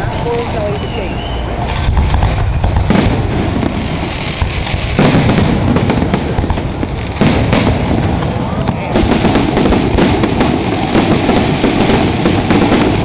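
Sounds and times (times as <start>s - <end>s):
continuous din: 0.0s - 13.0s
fireworks bangs: 0.0s - 13.0s.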